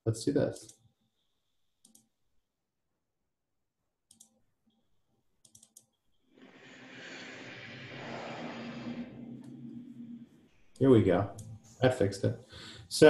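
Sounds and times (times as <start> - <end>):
computer mouse clicks: 1.8 - 2.1, 4.1 - 4.4, 5.4 - 6.0
steady rushing noise: 6.4 - 10.5.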